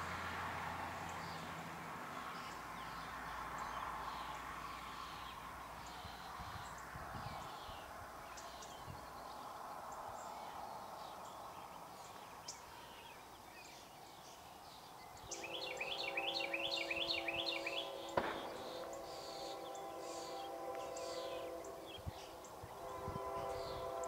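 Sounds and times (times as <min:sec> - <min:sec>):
birds chirping: 0:02.1 - 0:24.0
bird singing rising notes: 0:15.0 - 0:24.0
locomotive horn: 0:15.2 - 0:24.0.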